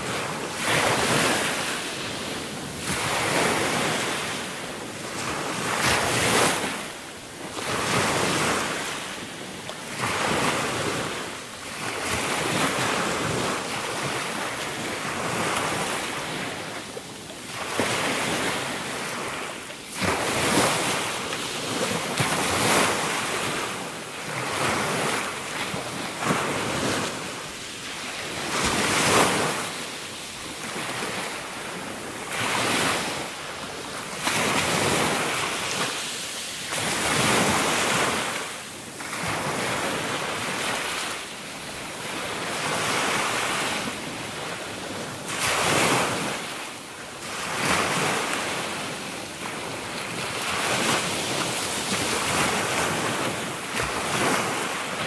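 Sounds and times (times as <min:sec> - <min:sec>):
waves washing up pebble beach: 0:17.5 - 0:46.6, 0:47.2 - 0:55.0.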